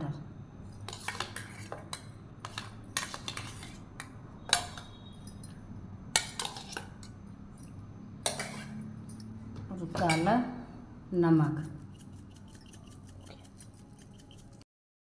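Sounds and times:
spoon clinking on a plate: 0:00.8 - 0:09.4.

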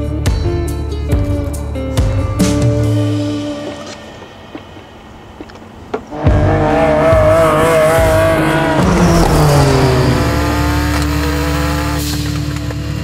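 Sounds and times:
race car engine revving: 0:06.0 - 0:13.0.

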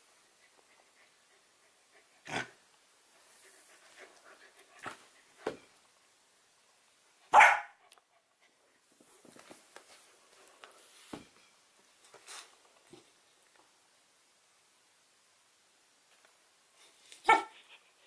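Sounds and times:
puppy barking: 0:07.3 - 0:07.8, 0:17.2 - 0:17.6
soft rustling: 0:08.4 - 0:13.7.

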